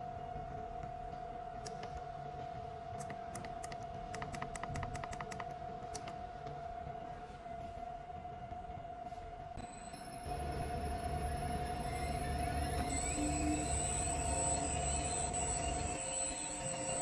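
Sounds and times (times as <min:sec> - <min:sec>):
high-pitched hum: 0:09.6 - 0:17.0.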